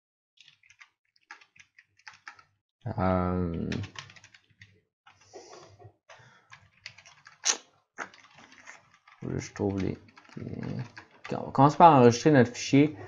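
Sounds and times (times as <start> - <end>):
keyboard typing: 0.4 - 2.5, 3.1 - 5.3, 6.1 - 11.8.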